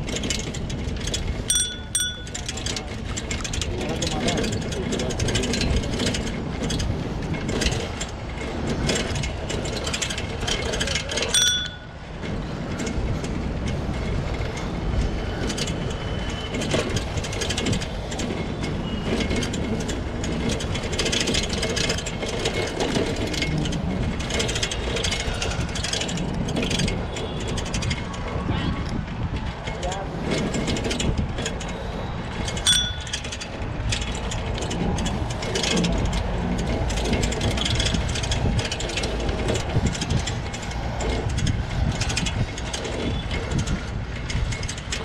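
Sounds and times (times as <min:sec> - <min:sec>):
bicycle rattling and clicking: 0:00.0 - 0:45.0
short metallic ring: 0:01.5 - 0:02.4, 0:11.3 - 0:12.0, 0:32.7 - 0:33.4
wind rushing on microphone: 0:12.2 - 0:45.0.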